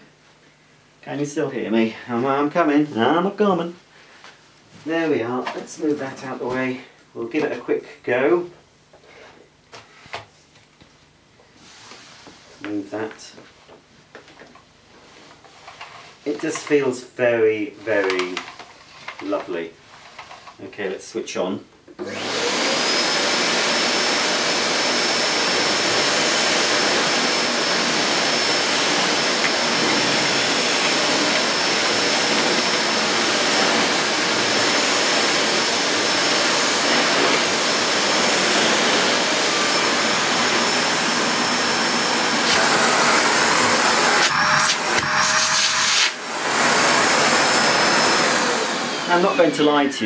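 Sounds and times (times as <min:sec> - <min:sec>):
vacuum cleaner motor whine: 0:22.0 - 0:50.0.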